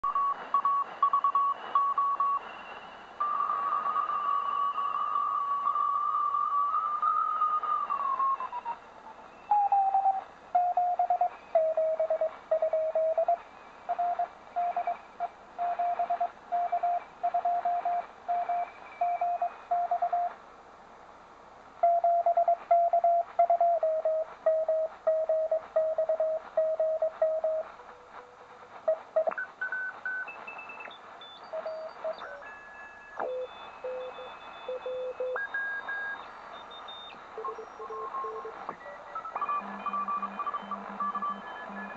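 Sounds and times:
radio band hiss: 0:00.0 - 0:15.6, 0:18.0 - 0:41.9
morse code beeping tone: 0:09.5 - 0:15.0, 0:15.6 - 0:20.3, 0:21.8 - 0:27.7, 0:28.9 - 0:41.9.

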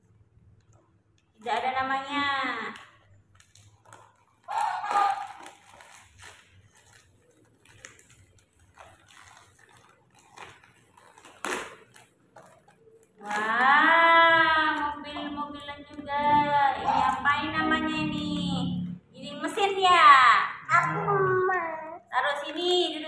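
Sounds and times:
wrapping paper crinkling and tearing: 0:01.4 - 0:18.2.

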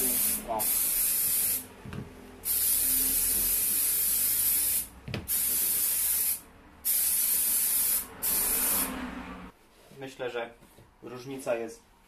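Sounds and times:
aerosol spray hissing: 0:00.0 - 0:01.7, 0:02.4 - 0:08.9.

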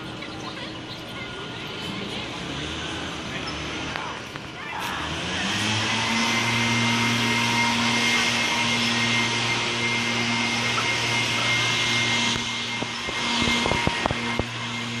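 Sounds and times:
motor humming with fan hiss: 0:00.0 - 0:15.0.

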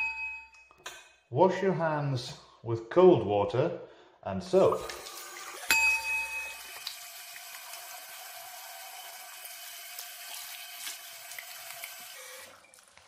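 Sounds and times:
tap water running into sink: 0:04.7 - 0:13.0.

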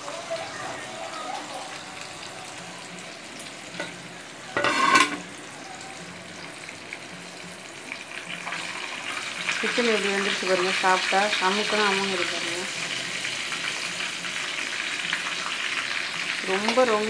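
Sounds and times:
chicken deep-frying in oil: 0:00.0 - 0:17.0.

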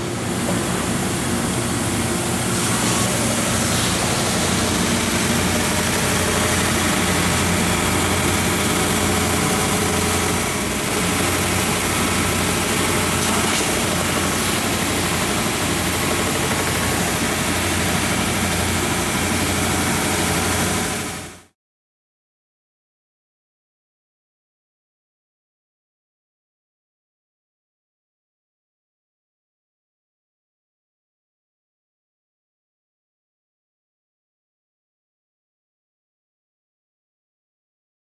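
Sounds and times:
belt sander running: 0:00.2 - 0:21.2.

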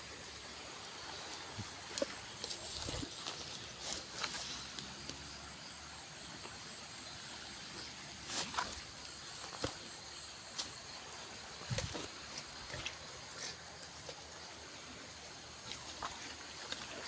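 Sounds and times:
high-pitched insect chorus: 0:00.0 - 0:17.0
river flowing: 0:00.0 - 0:17.0
steps through wet undergrowth: 0:01.1 - 0:05.4, 0:08.2 - 0:14.5, 0:15.5 - 0:17.0.

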